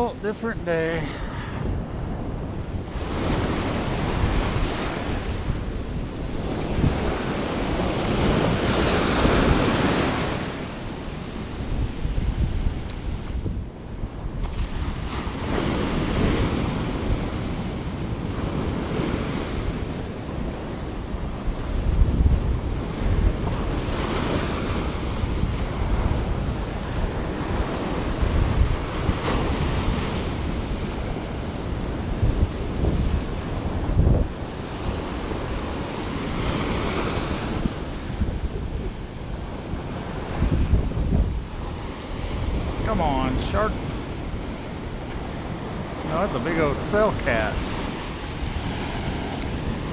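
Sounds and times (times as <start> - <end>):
waves breaking on beach: 0.0 - 49.9
wind on microphone: 0.0 - 49.9.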